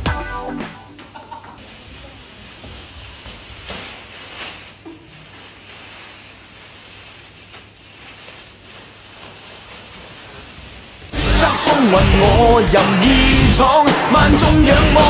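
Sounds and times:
plastic bag rustling: 1.4s - 12.5s.

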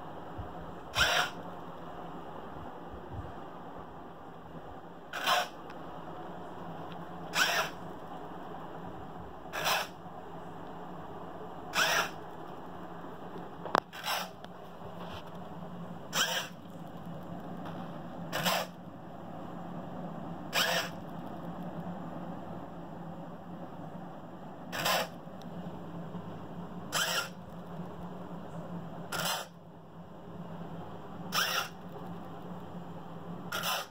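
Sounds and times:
servo motor whirring: 1.0s - 1.4s, 5.2s - 5.6s, 7.3s - 7.8s, 9.5s - 9.9s, 11.7s - 12.2s, 13.9s - 14.3s, 16.1s - 16.6s, 18.3s - 18.8s, 20.5s - 21.0s, 24.8s - 25.2s, 27.0s - 27.4s, 31.3s - 31.8s, 33.5s - 33.9s.

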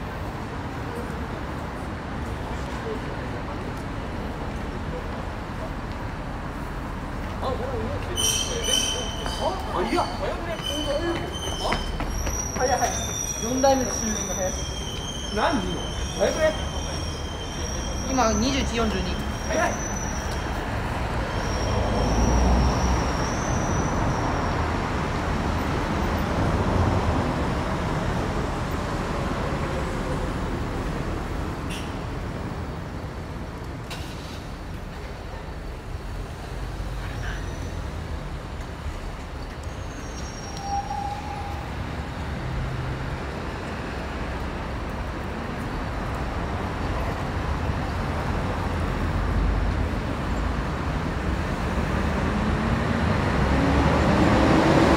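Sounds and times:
rumble of passing traffic: 0.0s - 54.9s
brief high squeal: 8.2s - 18.5s, 19.2s - 20.6s, 21.3s - 24.5s, 39.7s - 41.8s.

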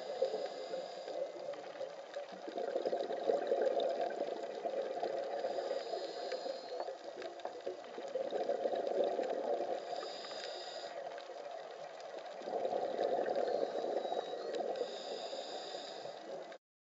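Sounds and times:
regulator inhalation hiss: 0.0s - 1.5s, 5.2s - 7.0s, 9.7s - 11.4s, 12.9s - 16.4s
faint clicks: 0.2s - 16.6s
bubbles from diver exhaling: 2.4s - 5.6s, 7.8s - 9.8s, 12.3s - 14.8s.

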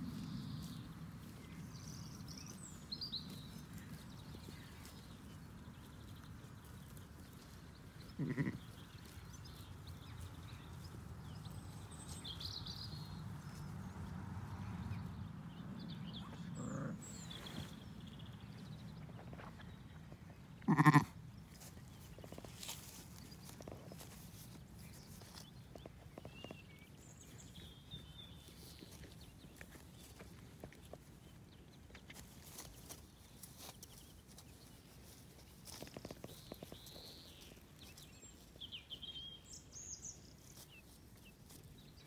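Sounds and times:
birds chirping: 0.2s - 14.0s, 14.8s - 42.0s
sheep bleating: 8.2s - 8.7s, 20.6s - 21.2s.

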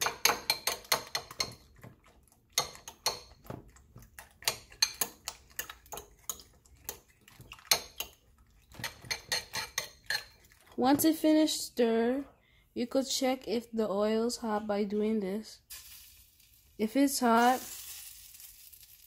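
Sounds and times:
utensil beating eggs in bowl: 0.0s - 11.5s.

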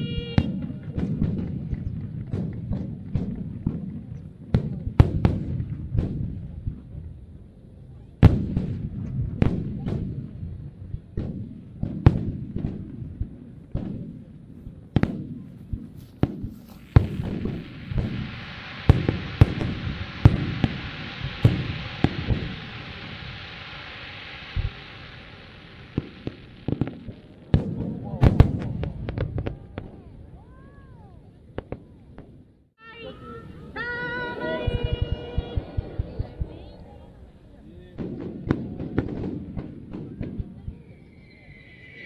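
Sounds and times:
fireworks bursting with bangs: 0.0s - 42.0s
steady hiss: 15.6s - 27.5s.

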